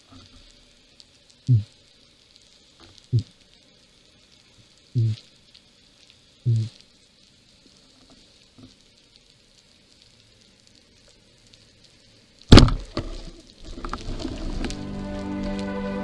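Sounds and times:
underwater hiss: 0.0 - 16.0
low thump: 12.5 - 13.2
speargun shot underwater: 12.5 - 14.4.

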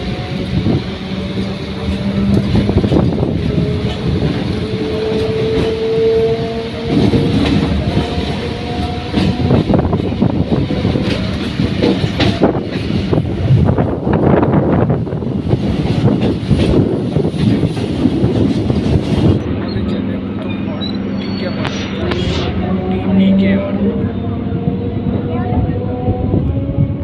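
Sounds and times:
train wheels rumbling: 0.0 - 27.0
wheels clattering over rail joints: 1.0 - 13.5.

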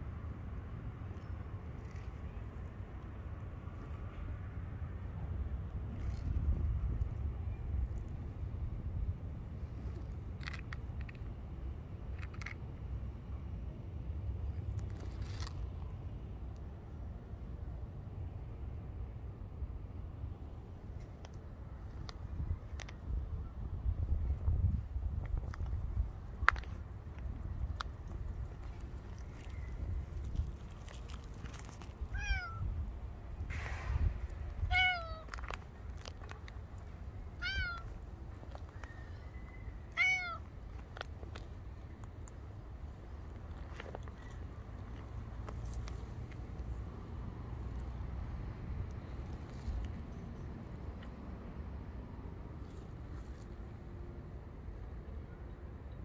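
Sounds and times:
wind on microphone: 5.7 - 10.5, 21.8 - 40.1
cat meowing: 32.2 - 32.7, 34.7 - 35.3, 37.4 - 37.9, 39.9 - 40.4.

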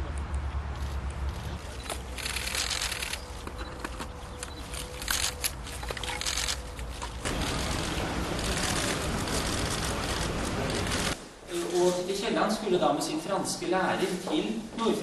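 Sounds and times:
low outdoor rumble: 4.1 - 11.2.

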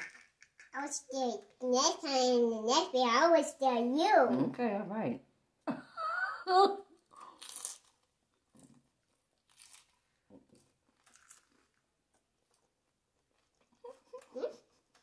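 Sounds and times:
crunching taco shells: 7.1 - 14.0.

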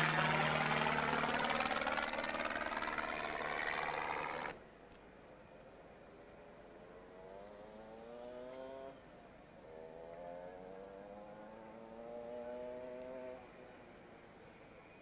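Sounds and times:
propeller aircraft engine droning: 0.0 - 4.6.

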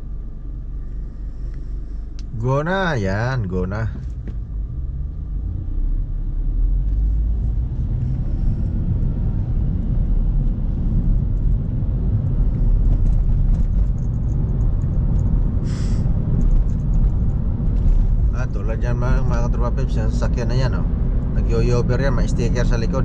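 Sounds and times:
car engine and tyre rumble: 0.0 - 23.0
short hiss: 15.7 - 16.1.

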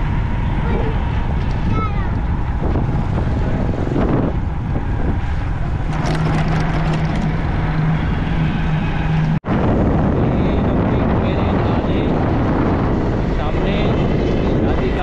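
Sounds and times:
wind rushing over microphone: 0.0 - 15.0
motorcycle engine running: 5.8 - 8.2.

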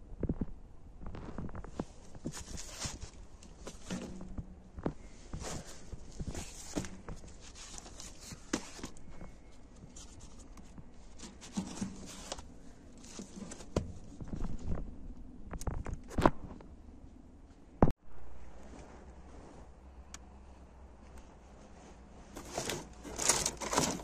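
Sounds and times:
cardboard sleeves rustling and sliding: 1.6 - 4.4, 5.0 - 14.8, 21.5 - 24.0.

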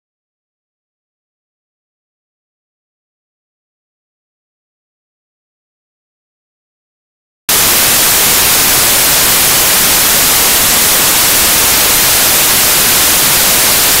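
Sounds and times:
static hiss: 7.5 - 14.0.

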